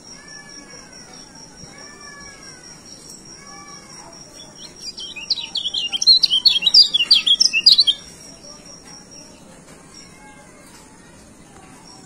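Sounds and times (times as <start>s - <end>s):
bird twittering song: 0.0s - 10.4s.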